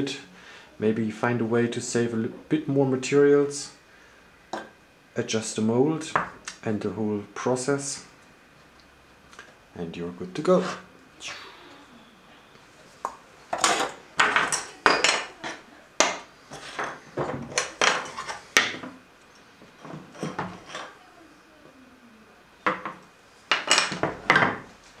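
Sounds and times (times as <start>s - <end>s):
wooden and plastic parts clattering: 13.5s - 19.0s, 22.7s - 24.7s.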